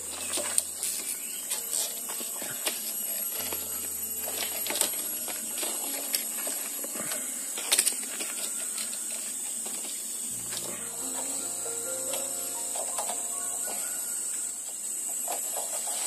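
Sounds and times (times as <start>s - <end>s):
forest insects droning: 0.0s - 16.0s
rattan clicks and crackles: 0.0s - 16.0s.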